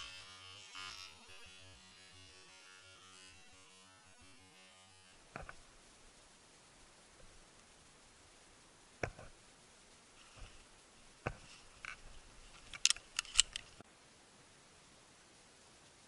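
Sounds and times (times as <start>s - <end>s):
sharp mechanical clicks: 12.7s - 13.8s.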